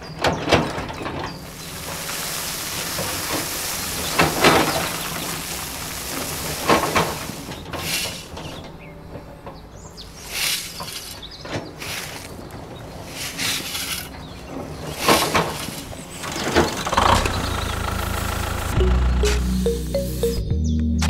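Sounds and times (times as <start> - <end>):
soil scraping off trailer bed: 0.0 - 18.7
sand and soil pouring: 1.4 - 8.8, 10.1 - 18.7.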